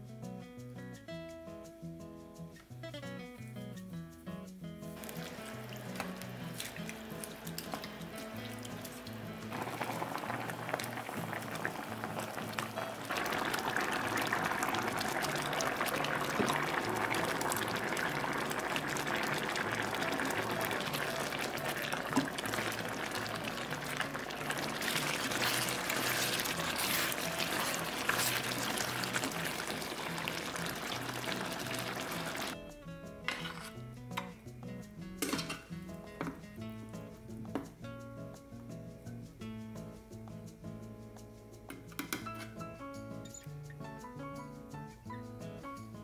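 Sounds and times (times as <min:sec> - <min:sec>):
food bubbling in a pan: 0:05.0 - 0:32.6.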